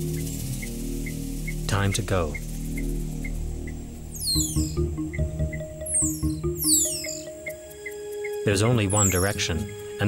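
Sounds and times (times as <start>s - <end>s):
low drone: 0.0s - 8.2s
pulsing low beat: 0.0s - 8.4s
high notes stepping down: 1.0s - 7.9s.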